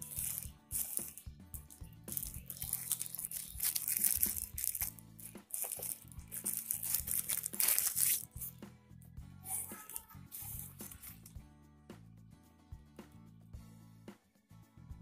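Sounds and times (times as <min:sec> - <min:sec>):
plastic bag crinkling: 0:00.0 - 0:08.5
background music: 0:00.0 - 0:15.0.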